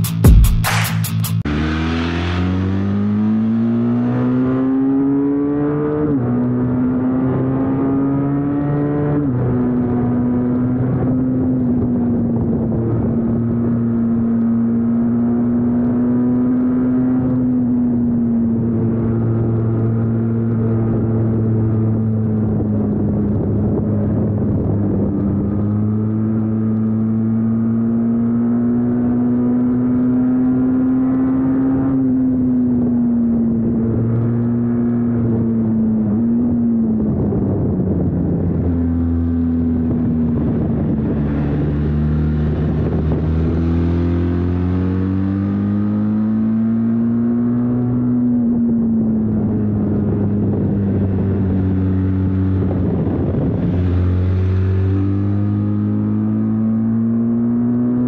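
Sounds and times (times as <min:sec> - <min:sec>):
motorcycle engine running: 0:00.0 - 0:03.8, 0:36.9 - 0:47.2, 0:48.5 - 0:57.1.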